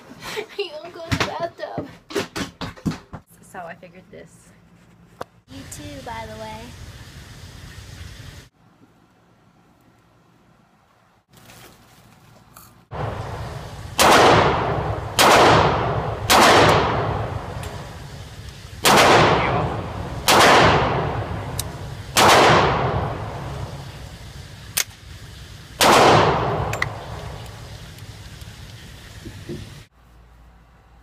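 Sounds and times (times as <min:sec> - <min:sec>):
low background rumble: 0:12.9 - 0:31.0
rifle shots echoing indoors: 0:14.0 - 0:17.3, 0:18.8 - 0:21.3, 0:22.2 - 0:23.1, 0:25.8 - 0:26.9.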